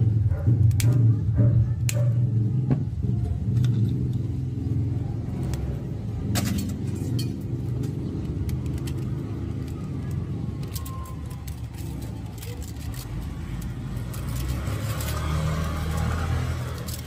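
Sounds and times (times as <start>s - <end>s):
clicks of copper wire unwinding: 6.4s - 17.0s.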